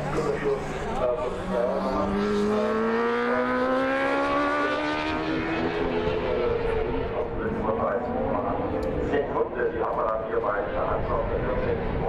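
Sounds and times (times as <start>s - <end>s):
motorcycle engine accelerating: 0.0s - 9.5s.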